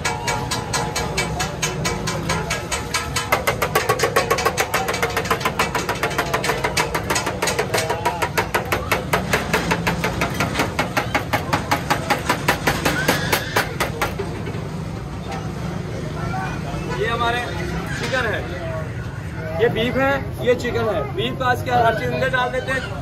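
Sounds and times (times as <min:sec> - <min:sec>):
rapid even knocking: 0:00.0 - 0:14.4.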